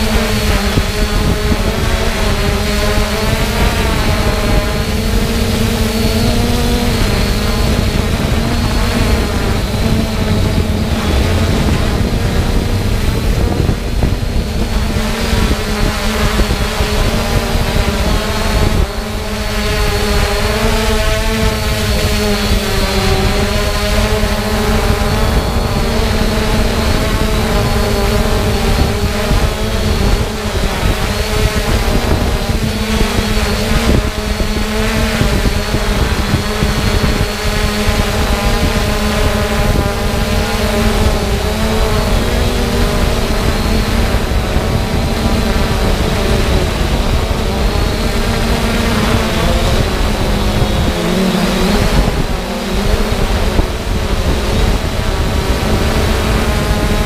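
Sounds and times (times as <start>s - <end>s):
drone motors whining: 0.0s - 57.0s
wind rumble on microphone: 0.0s - 57.0s.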